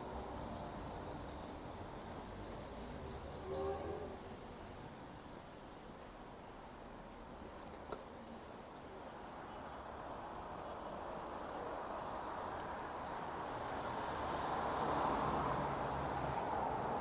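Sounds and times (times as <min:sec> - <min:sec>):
car driving past: 0:11.8 - 0:17.0.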